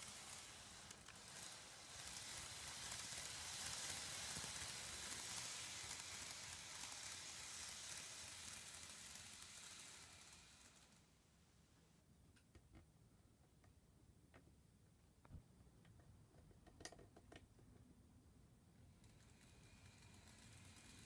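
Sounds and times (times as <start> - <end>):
model train wheels hissing: 0.0 - 11.4, 18.9 - 21.0.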